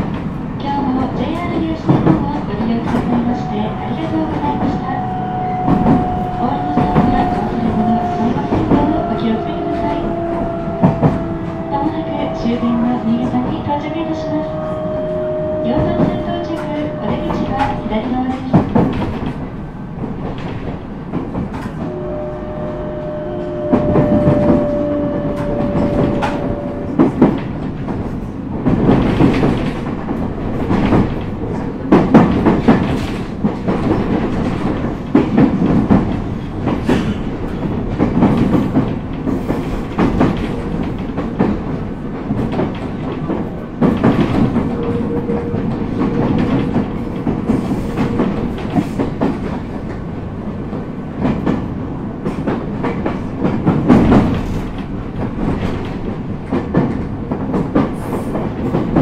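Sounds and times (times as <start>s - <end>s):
train rumble: 0.0s - 59.0s.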